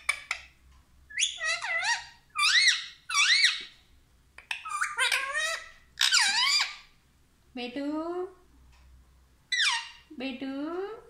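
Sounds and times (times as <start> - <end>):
parakeet squeaky calls: 0.0 - 3.8, 4.5 - 6.9, 9.5 - 10.1.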